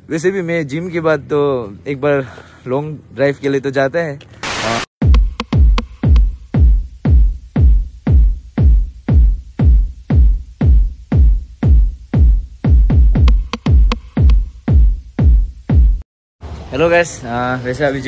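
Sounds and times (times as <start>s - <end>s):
electronic dance music: 4.5s - 16.0s
hi-hat ticks: 5.0s - 15.7s
heavy kick drum: 5.0s - 16.0s.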